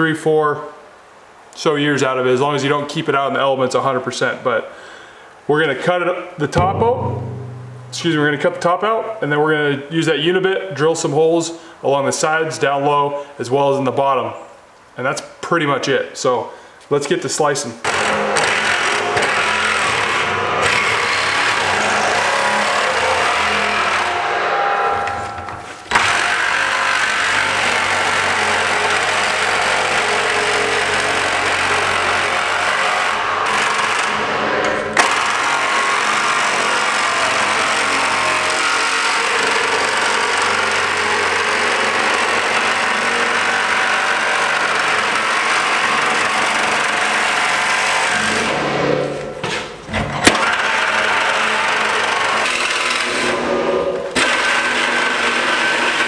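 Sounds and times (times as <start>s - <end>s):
reciprocating saw cutting sheet metal: 6.6s - 8.5s, 17.9s - 49.0s, 50.4s - 56.0s
saw starting with sharp clack: 17.8s - 49.6s, 50.2s - 56.0s.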